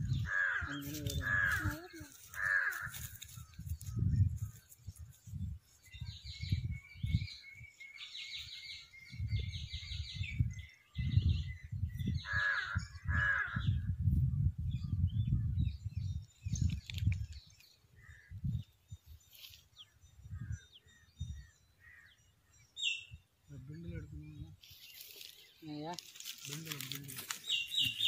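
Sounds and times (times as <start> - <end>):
birds chirping: 0.0 - 13.9, 14.7 - 28.0
wind buffeting microphone: 0.0 - 24.6
loud bird calls: 6.0 - 13.8, 24.6 - 28.0.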